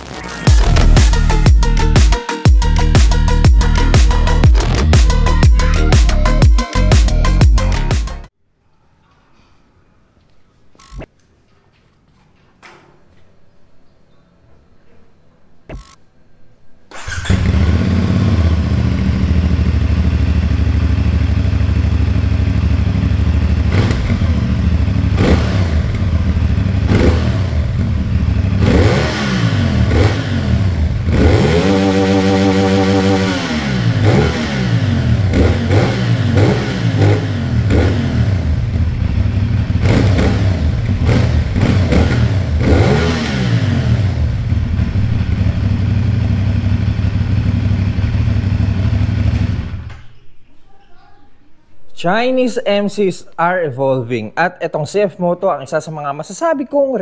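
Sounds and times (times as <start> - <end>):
motorcycle engine idling and revving: 17.0 - 50.1.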